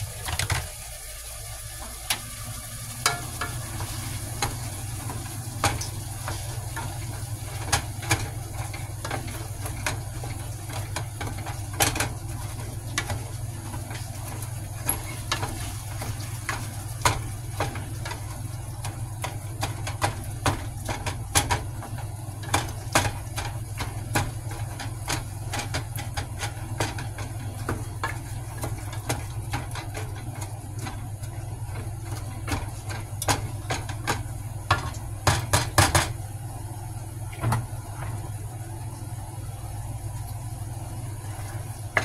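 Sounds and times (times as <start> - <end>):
steady low hum: 0.0 - 42.0
utensil knocking against pot: 31.8 - 36.2.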